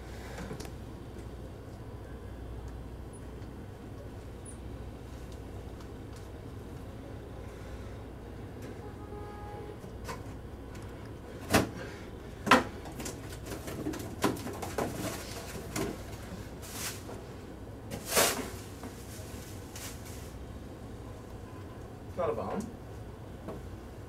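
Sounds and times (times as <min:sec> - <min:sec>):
plastic packing swishing: 0:15.0 - 0:17.1, 0:17.9 - 0:20.4.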